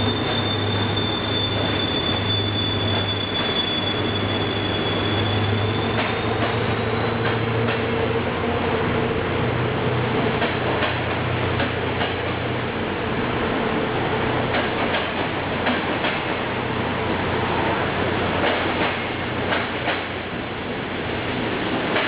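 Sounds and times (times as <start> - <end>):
high-pitched wheel squeal: 0.0 - 7.2
rumble of train wheels: 0.0 - 22.0.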